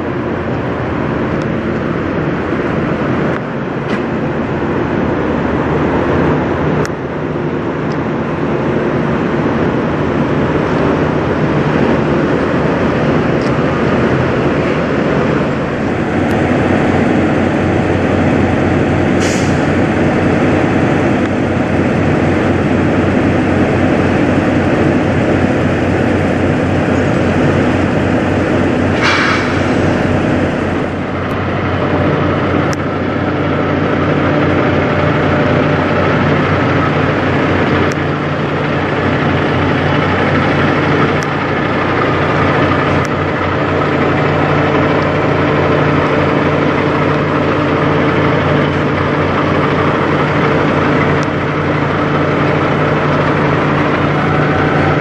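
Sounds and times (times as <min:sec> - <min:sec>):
truck diesel engine running: 0:00.0 - 0:55.0
air brakes hissing: 0:19.1 - 0:19.9, 0:28.8 - 0:31.3.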